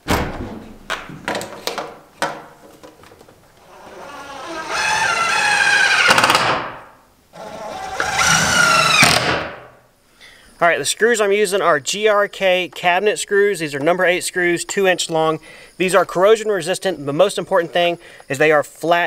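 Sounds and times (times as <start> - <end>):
impact driver driving screws: 3.8 - 6.7, 7.4 - 9.6.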